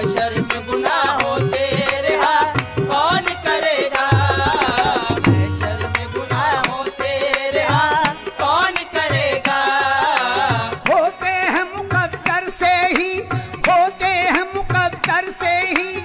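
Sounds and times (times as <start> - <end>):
tabla playing a steady rhythm: 0.0 - 16.0
deep bass drum pitch bend: 5.0 - 6.1.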